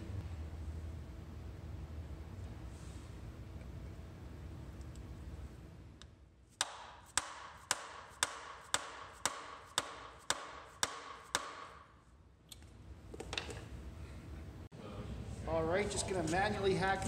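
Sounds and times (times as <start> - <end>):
sharp metallic knocks: 6.6 - 11.9.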